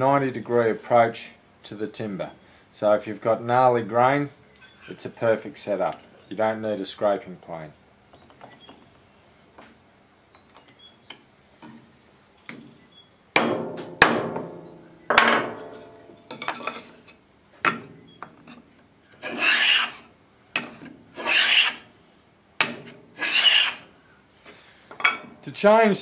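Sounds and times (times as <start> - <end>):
block plane rasping on wood: 19.2 - 20.0, 21.2 - 21.8, 23.2 - 23.8.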